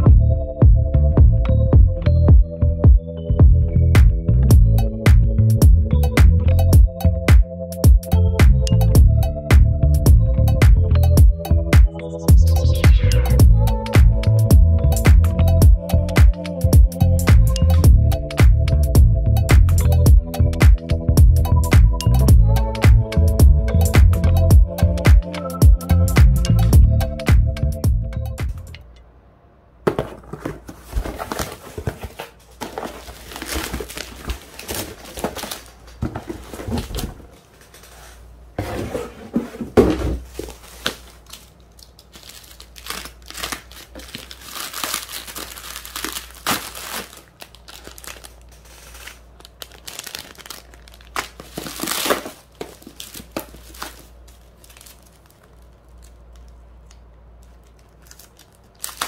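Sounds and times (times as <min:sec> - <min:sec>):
packaging crinkling and rustling: 0:29.9 - 0:38.4, 0:39.3 - 0:59.0.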